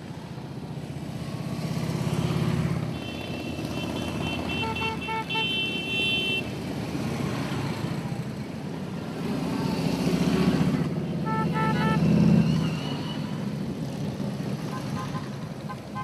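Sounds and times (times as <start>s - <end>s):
motorcycle engines rumbling: 0.0s - 16.0s
horns beeping: 2.9s - 6.5s, 11.2s - 12.2s.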